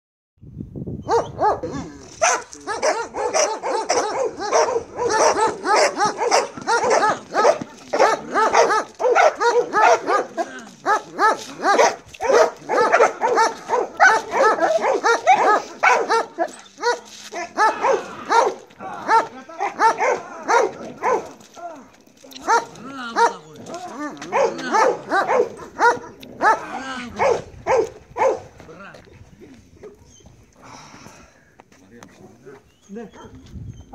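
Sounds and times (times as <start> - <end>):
dog barking rapidly: 1.1 - 21.4, 22.4 - 23.4, 24.2 - 28.5.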